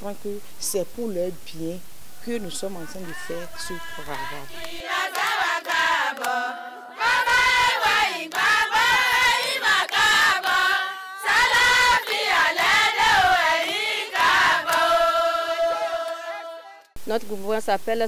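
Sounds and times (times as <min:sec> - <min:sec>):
women singing together: 0:02.2 - 0:17.0
hand claps: 0:04.6 - 0:06.4, 0:07.3 - 0:10.6, 0:11.2 - 0:15.0.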